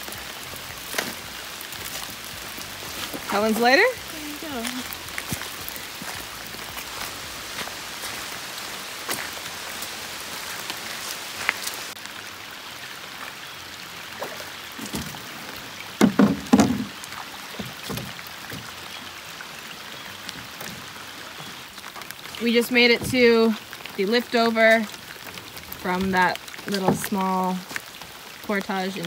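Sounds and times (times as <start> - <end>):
pouring rain: 0.0 - 29.0
sharp knocks: 16.0 - 16.9.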